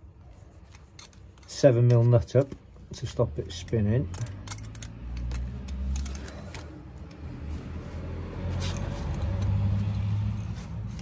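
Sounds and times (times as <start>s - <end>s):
vehicle engine rumble: 2.6s - 11.0s.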